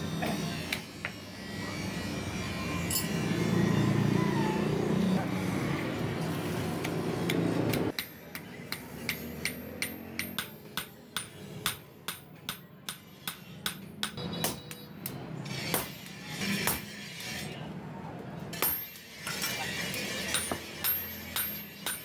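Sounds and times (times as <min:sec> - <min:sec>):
hammer striking blade on anvil: 0:07.3 - 0:17.4, 0:18.6 - 0:19.6, 0:20.2 - 0:22.0.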